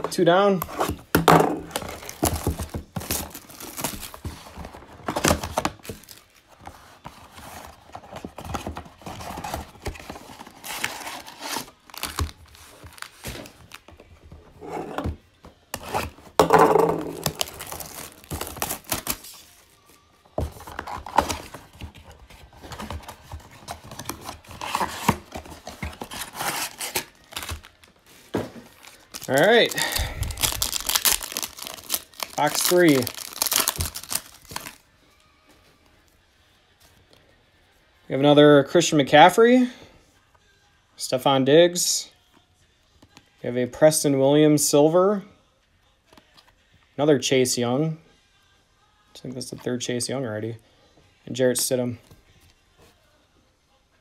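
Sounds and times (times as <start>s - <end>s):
plastic wrapping crinkling: 17.1s - 19.4s, 22.7s - 34.8s.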